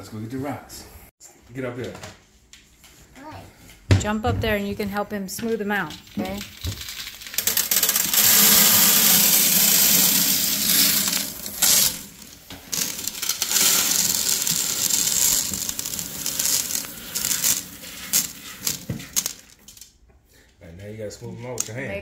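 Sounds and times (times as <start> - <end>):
gravel clattering into glass tank: 5.8 - 19.9.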